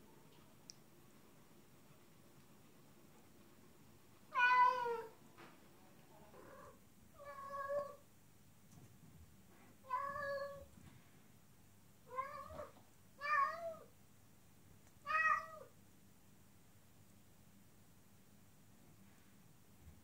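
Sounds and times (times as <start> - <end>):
cat meowing: 4.3 - 5.1, 6.4 - 8.0, 9.8 - 10.7, 12.1 - 13.9, 15.0 - 15.7.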